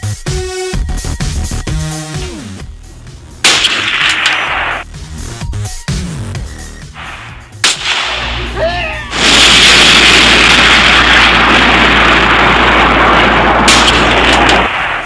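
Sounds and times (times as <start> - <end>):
sharp crack: 3.4 - 4.9, 6.9 - 8.6, 9.2 - 15.0
rush of burning flames: 9.1 - 15.0.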